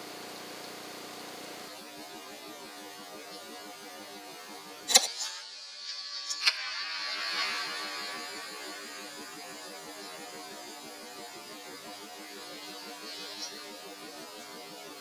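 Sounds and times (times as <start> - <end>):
faint electronic hum: 0.0 - 15.0
click and hiss: 4.9 - 10.3, 12.5 - 14.0.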